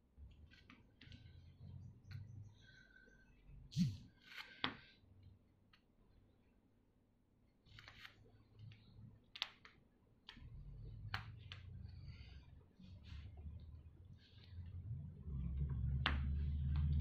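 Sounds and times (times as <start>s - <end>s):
faint clicks and taps: 7.8s - 12.0s.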